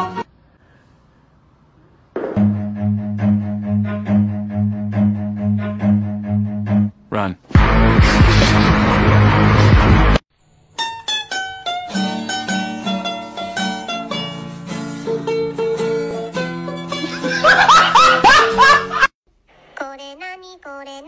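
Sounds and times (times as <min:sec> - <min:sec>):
upbeat plucked music: 0:02.4 - 0:06.9, 0:07.6 - 0:10.2, 0:10.8 - 0:19.0.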